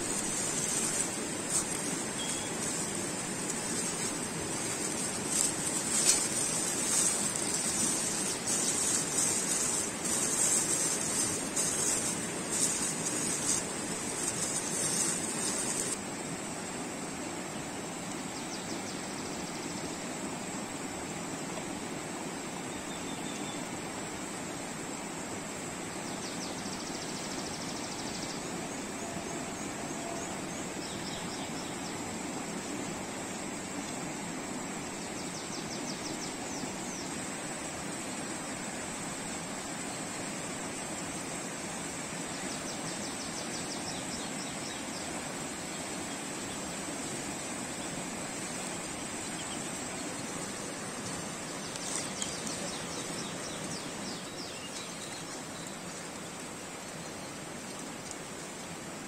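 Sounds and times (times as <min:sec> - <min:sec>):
hands working through salt: 0:00.0 - 0:16.0
paper crinkling and rustling: 0:00.0 - 0:16.0
mountain stream rushing: 0:00.0 - 0:22.9, 0:27.0 - 0:59.0.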